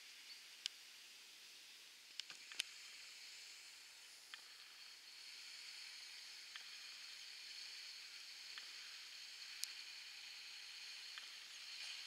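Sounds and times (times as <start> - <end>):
light rain hiss: 0.0 - 12.0
soft drip ticks: 4.3 - 4.7, 6.5 - 6.8, 8.5 - 9.8, 11.0 - 11.9.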